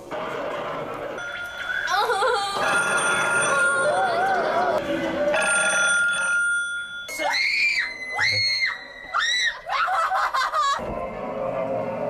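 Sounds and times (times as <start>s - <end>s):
women screaming: 7.2s - 10.8s.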